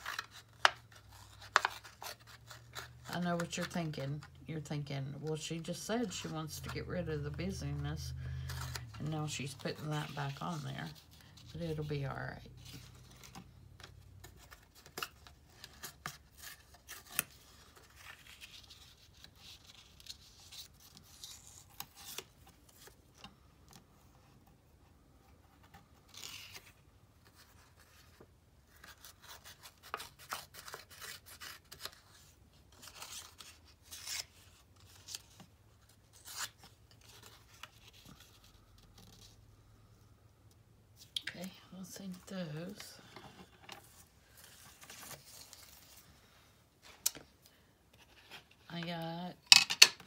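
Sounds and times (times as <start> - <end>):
paper rustling and tearing: 0.0 - 4.3, 5.4 - 23.0, 25.6 - 39.4, 43.8 - 47.2.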